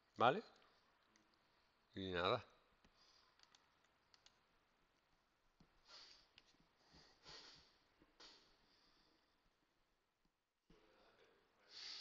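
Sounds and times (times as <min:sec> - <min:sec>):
faint computer mouse clicks: 0:02.8 - 0:04.4
soft hissing: 0:05.8 - 0:09.3, 0:10.9 - 0:12.0.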